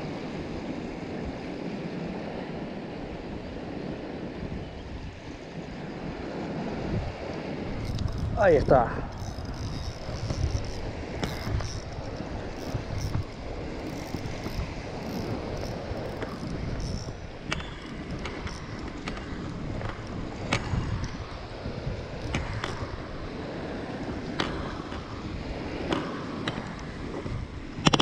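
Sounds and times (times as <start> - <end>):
small waves washing onto sand: 0.0 - 28.0
wind buffeting microphone: 0.0 - 28.0
fishing reel clicks and taps: 7.8 - 21.3, 22.2 - 22.9.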